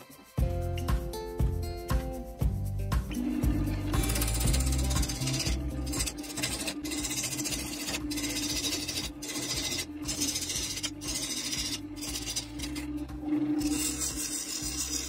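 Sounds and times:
lathe motor hum: 3.2 - 15.0
gouge rasping on wood: 4.0 - 12.9, 13.6 - 15.0.

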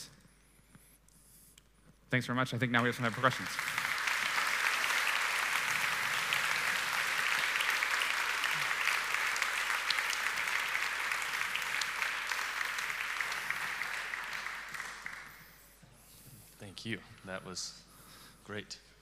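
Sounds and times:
audience applauding: 2.8 - 15.6.

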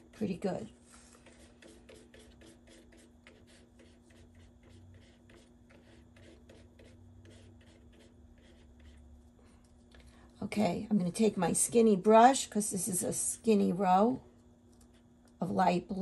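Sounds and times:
low steady hum: 0.0 - 16.0
paintbrush scratching: 0.8 - 9.0.

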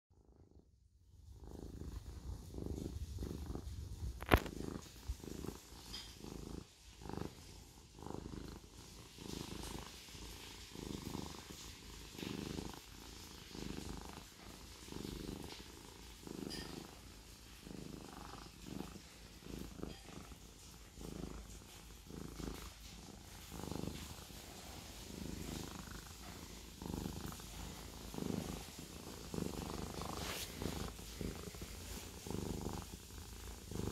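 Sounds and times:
cat purring: 0.2 - 33.9.

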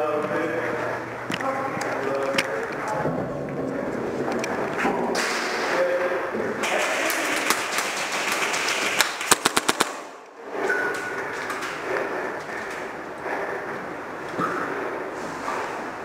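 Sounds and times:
noisy background: 0.0 - 16.0
airsoft gun shots: 7.5 - 10.2.

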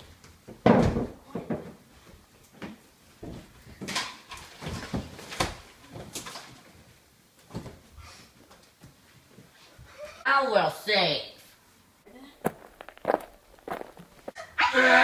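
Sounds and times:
scuffling on wooden floor: 12.4 - 14.4.

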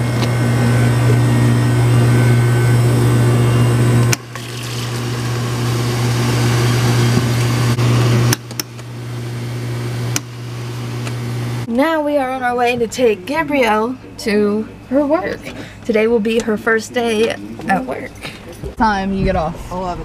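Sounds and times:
machine hum: 0.0 - 20.0
soda pouring into cup: 4.2 - 7.1.

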